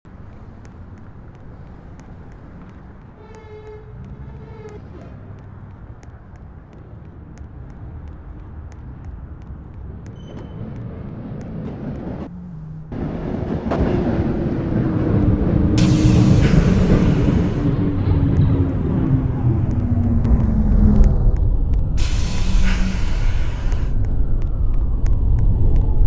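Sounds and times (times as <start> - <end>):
subway train rumbling: 10.2 - 26.0.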